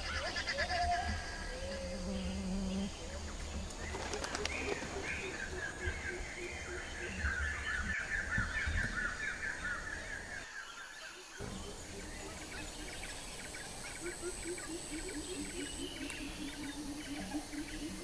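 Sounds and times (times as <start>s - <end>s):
low repeated animal call: 0.0s - 3.7s, 11.4s - 18.0s
birds chattering: 0.0s - 10.5s, 11.4s - 18.0s
high insect whine: 0.0s - 18.0s.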